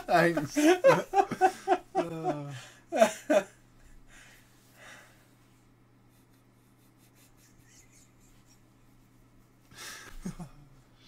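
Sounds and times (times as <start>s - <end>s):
faint low hum: 0.0s - 11.0s
man breathing softly: 3.9s - 6.3s, 9.6s - 10.2s.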